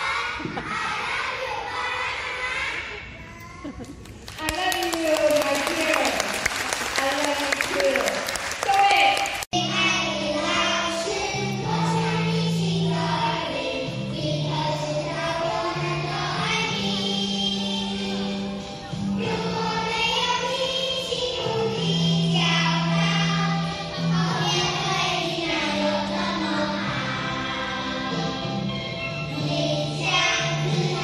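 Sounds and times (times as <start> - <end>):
children singing: 0.0 - 3.2, 9.6 - 31.0.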